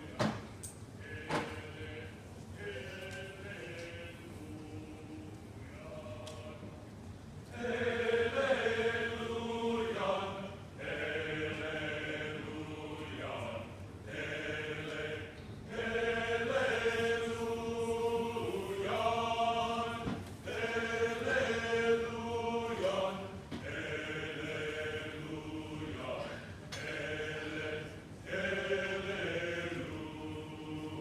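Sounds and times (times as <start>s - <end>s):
choir singing held chords: 1.0s - 31.0s.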